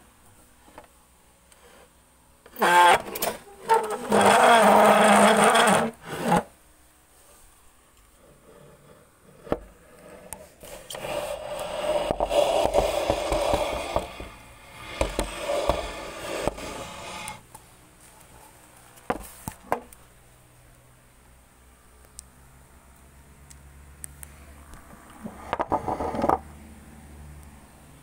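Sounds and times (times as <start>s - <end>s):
loud rubbing and scraping: 2.6s - 6.5s, 10.6s - 17.4s.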